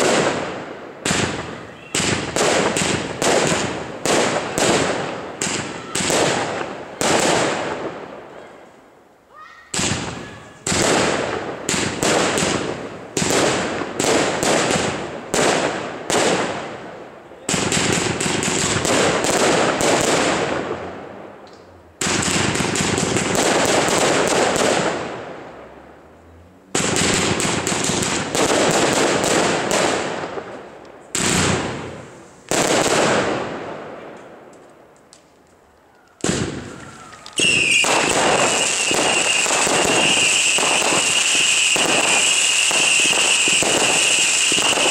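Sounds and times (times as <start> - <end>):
firework shots and bangs: 0.0 - 8.1, 9.7 - 16.8, 17.5 - 21.0, 22.0 - 25.4, 26.7 - 34.4, 36.2 - 44.9
steady high whistle: 37.0 - 44.9.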